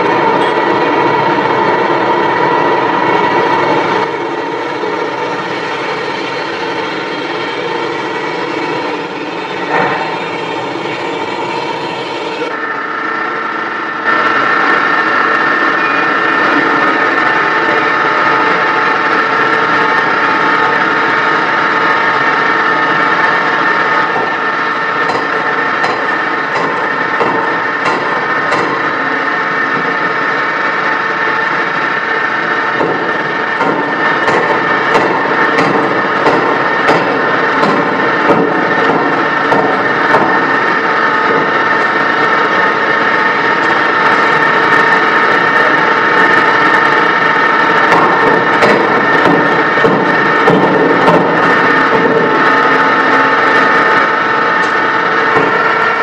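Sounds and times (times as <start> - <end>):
forging hammer droning: 0.0 - 56.0
hammer striking steel block: 25.0 - 29.0, 32.8 - 40.6, 47.9 - 52.4.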